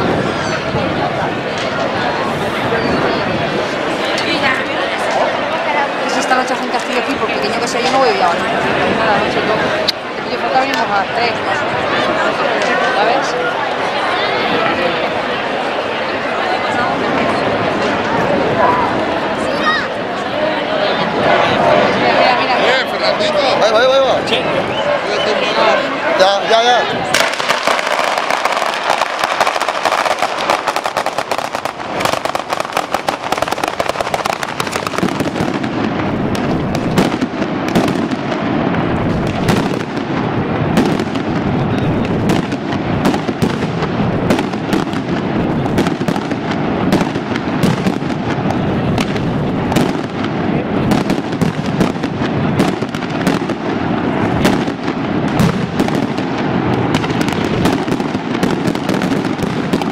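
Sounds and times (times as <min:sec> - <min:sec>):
firecracker crackle: 0:00.0 - 0:11.4, 0:27.0 - 0:59.9
heavy firecracker bangs: 0:27.0 - 0:59.9.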